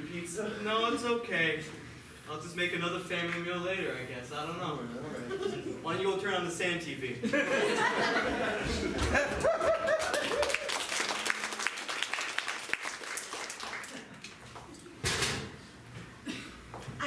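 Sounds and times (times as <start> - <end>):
audience laughing: 7.2 - 10.7
audience clapping: 9.0 - 14.8.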